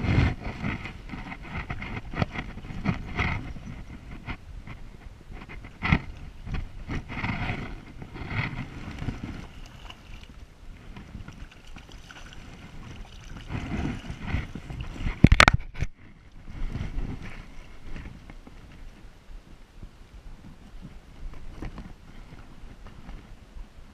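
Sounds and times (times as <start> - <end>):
fish splashing at water surface: 11.3 - 14.5.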